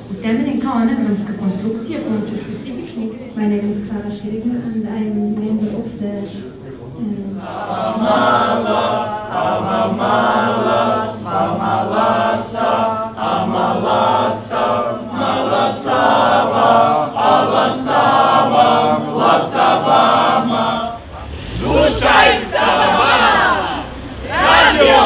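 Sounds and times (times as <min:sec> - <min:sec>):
group singing unaccompanied: 0:07.3 - 0:25.0.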